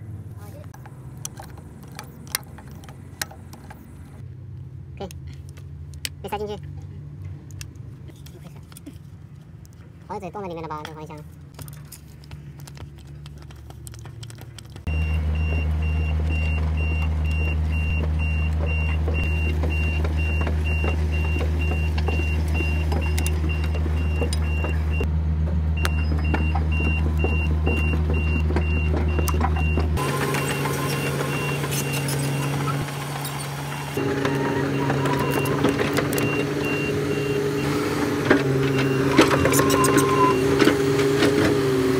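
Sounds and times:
excavator diesel engine running: 0:11.6 - 0:41.9.

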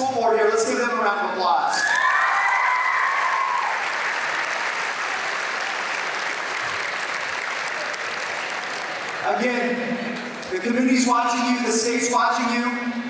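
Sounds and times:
cheering shouts: 0:01.7 - 0:06.9
crowd clapping: 0:01.9 - 0:09.4.

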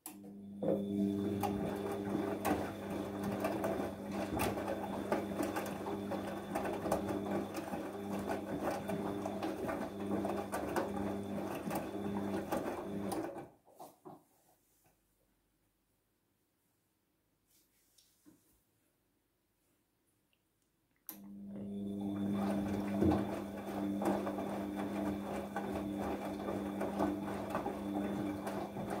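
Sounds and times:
washing machine drum humming: 0:00.1 - 0:13.4, 0:21.2 - 0:29.0.

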